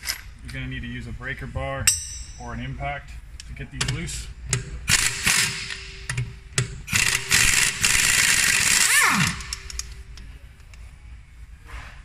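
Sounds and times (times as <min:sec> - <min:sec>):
air impact wrench: 0:04.9 - 0:09.9.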